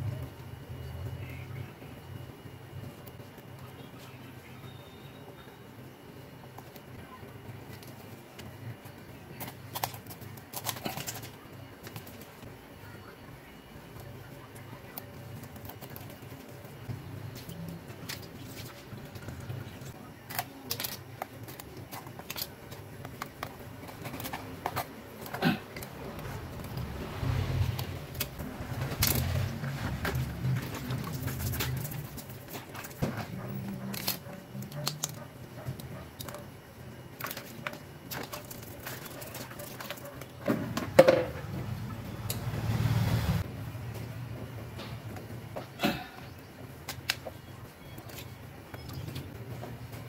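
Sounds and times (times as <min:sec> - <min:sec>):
plastic strips clicking and crinkling: 0:09.3 - 0:12.4, 0:17.3 - 0:26.8, 0:27.7 - 0:36.4
low rumble: 0:25.8 - 0:32.2.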